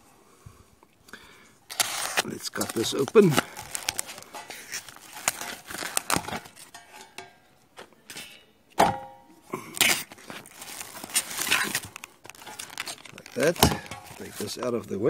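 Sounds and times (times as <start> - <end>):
plastic film crinkling and tearing: 1.7 - 6.9, 9.6 - 15.0.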